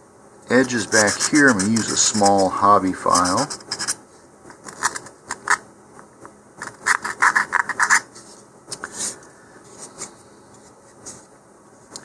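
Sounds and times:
file scraping wood: 0.6s - 4.0s.

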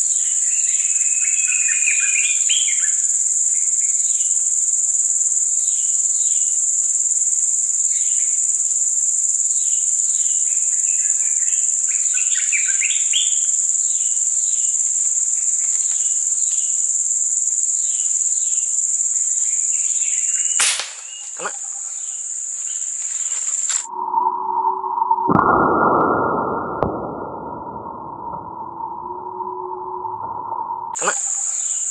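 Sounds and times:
insect drone: 0.0s - 31.9s
sharp click: 20.6s - 21.1s
steady electronic tone: 23.8s - 31.0s.

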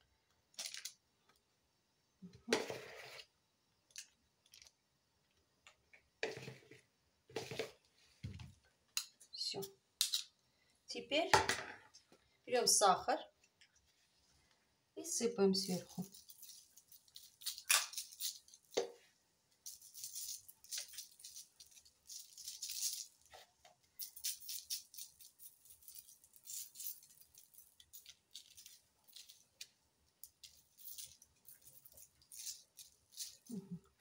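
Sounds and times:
sugar grains pattering: 15.6s - 18.8s, 19.6s - 23.4s, 24.0s - 34.0s.

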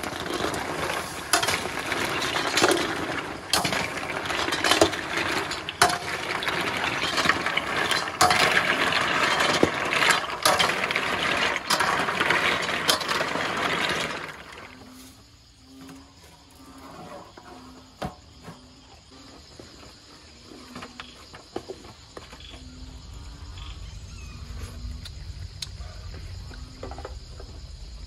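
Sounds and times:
water sizzling in hot wok: 0.0s - 14.9s.

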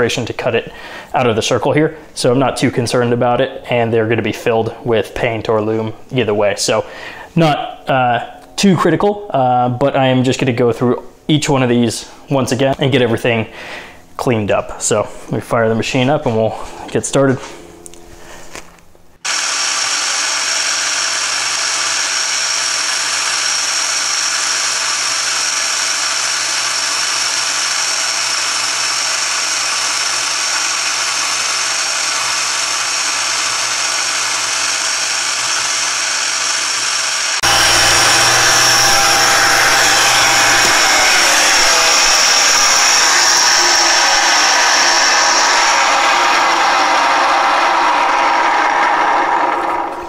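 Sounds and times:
engraving spindle whine: 19.3s - 50.0s
low hum: 37.4s - 50.0s.

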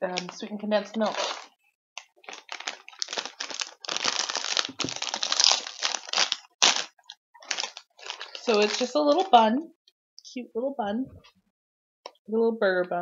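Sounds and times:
plastic wrapper crinkling and tearing: 0.1s - 9.3s.

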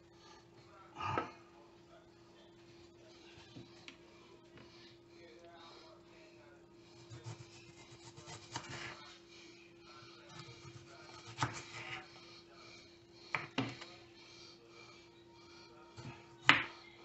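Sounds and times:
knife slicing tomato: 7.0s - 9.0s, 10.3s - 12.0s.

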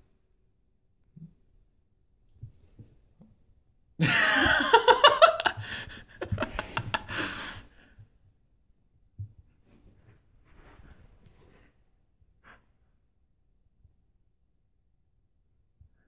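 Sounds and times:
person laughing: 4.0s - 7.6s.

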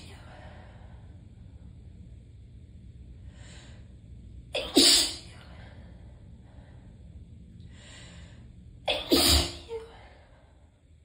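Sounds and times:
person sneezing: 4.6s - 5.3s, 8.9s - 10.0s.

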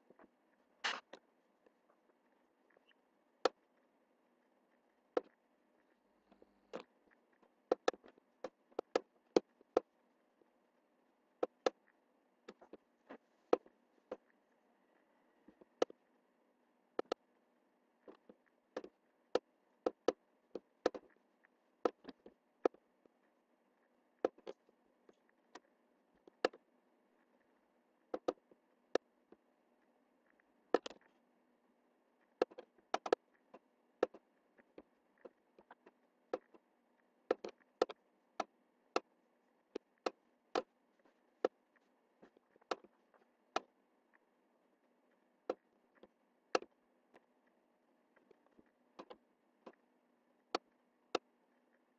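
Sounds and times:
faint steady hum: 0.0s - 51.9s
computer mouse clicking: 18.0s - 21.2s, 28.1s - 29.0s, 32.4s - 36.6s, 37.3s - 39.1s.

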